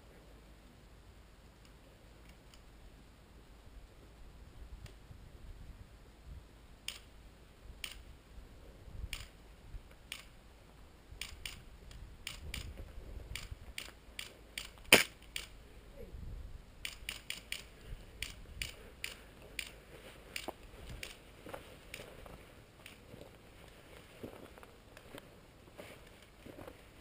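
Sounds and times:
airsoft pistols firing: 14.6 - 15.5.

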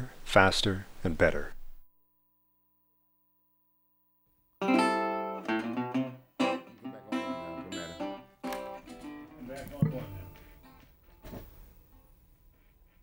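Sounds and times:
acoustic guitar chords: 4.6 - 10.7.

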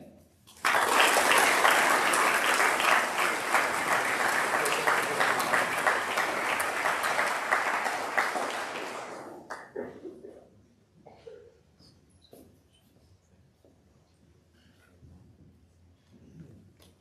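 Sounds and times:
audience applauding: 0.5 - 10.0.

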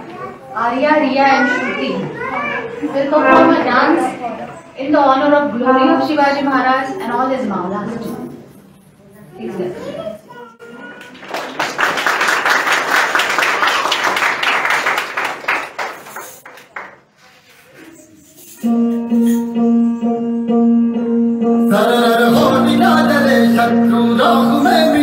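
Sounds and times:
plucked string notes: 3.2 - 4.1
audience applauding: 11.0 - 17.0.

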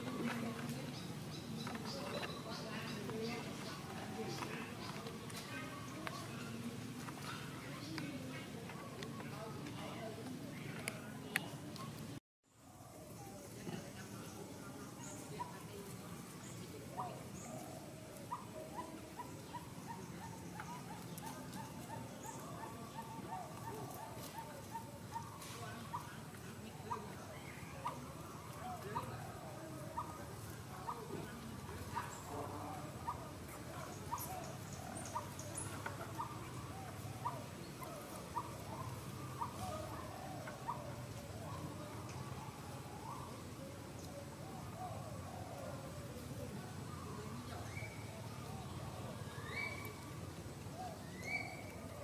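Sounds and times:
outdoor background: 0.0 - 52.0
wavering lower animal calls: 14.9 - 52.0.

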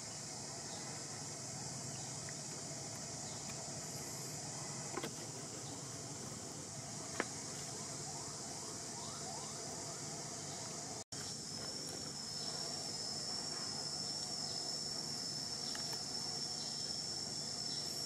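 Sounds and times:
high-pitched insect chorus: 0.0 - 18.0
small clicks: 15.7 - 16.1.

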